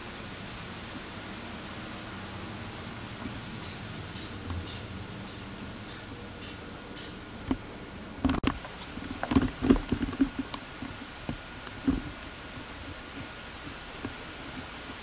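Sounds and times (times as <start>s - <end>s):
tape hiss: 0.0s - 15.0s.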